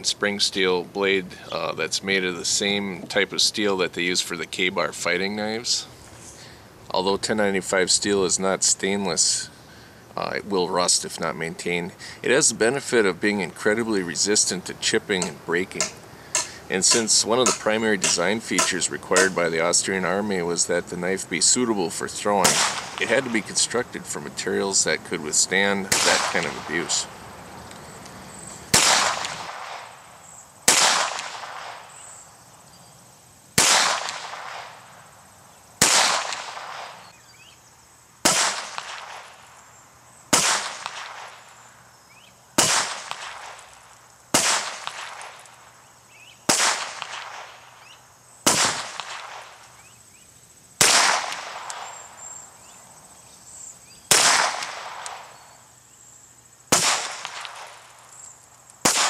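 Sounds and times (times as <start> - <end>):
pistol shots echoing: 15.2 - 19.5, 22.4 - 23.6, 25.9 - 27.0, 28.7 - 30.0, 30.7 - 31.9, 33.6 - 34.7, 35.8 - 37.0, 38.2 - 39.3, 40.3 - 41.4, 42.6 - 43.6, 44.3 - 45.4, 46.5 - 47.6, 48.4 - 49.6, 50.8 - 52.1, 54.1 - 55.3, 56.7 - 57.9.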